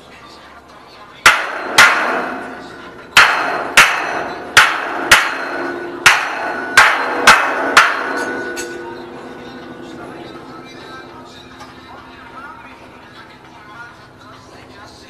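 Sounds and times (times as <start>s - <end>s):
hammer striking steel: 1.2s - 13.3s.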